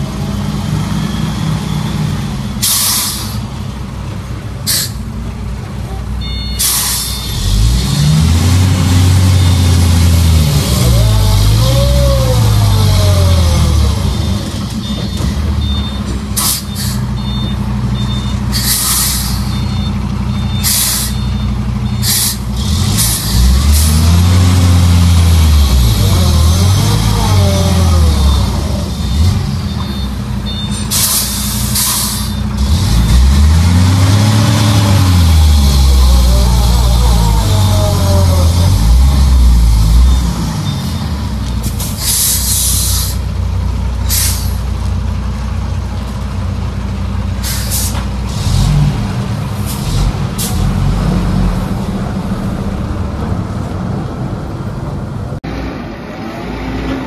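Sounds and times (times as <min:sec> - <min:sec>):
truck diesel engine labouring: 0:00.0 - 0:57.0
air brake release hisses: 0:02.6 - 0:03.4, 0:04.7 - 0:05.0, 0:06.6 - 0:07.3, 0:16.4 - 0:17.1, 0:18.5 - 0:19.5, 0:20.6 - 0:21.2, 0:22.0 - 0:23.9, 0:30.9 - 0:32.4, 0:41.6 - 0:43.2, 0:44.1 - 0:44.6, 0:47.4 - 0:48.1.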